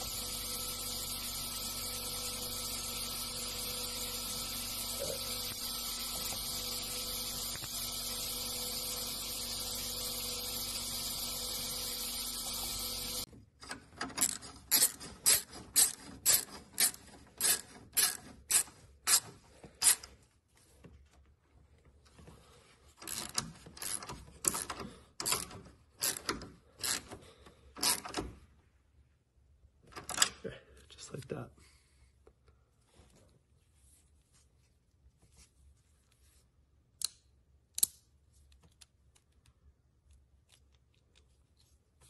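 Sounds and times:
drilling machine hum: 0.0s - 13.3s
hand ratchet clicking: 13.7s - 20.1s, 23.0s - 28.3s.

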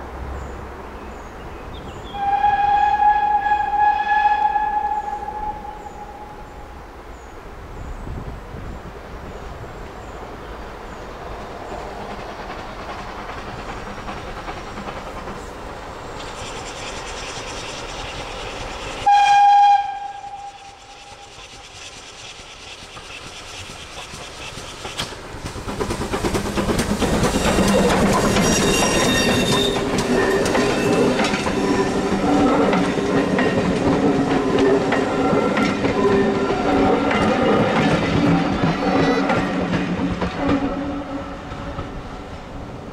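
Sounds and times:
steam locomotive whistle: 2.0s - 6.6s, 19.0s - 21.4s, 27.3s - 32.5s
train wheels on rails: 8.0s - 42.9s.

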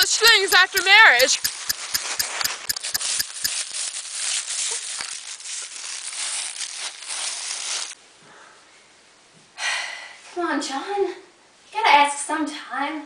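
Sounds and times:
scattered clicks: 0.0s - 3.6s
dense crackling and rustling: 2.9s - 8.0s.

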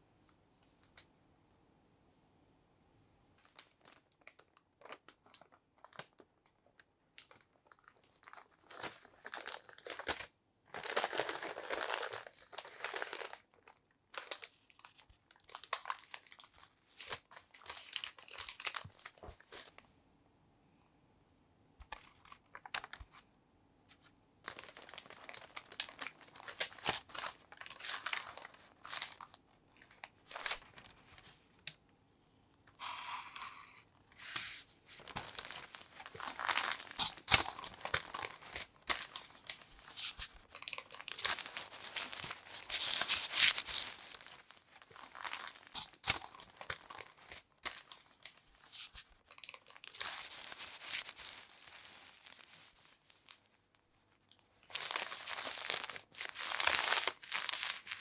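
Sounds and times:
baking paper rustling: 32.8s - 53.5s, 54.7s - 58.0s.

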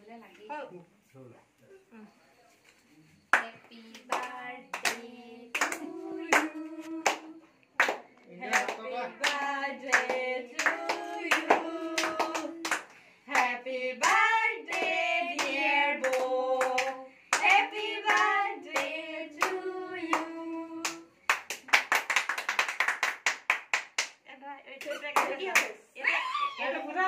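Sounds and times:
group singing a celebration song: 3.3s - 22.0s
hands clapping: 3.3s - 24.2s.

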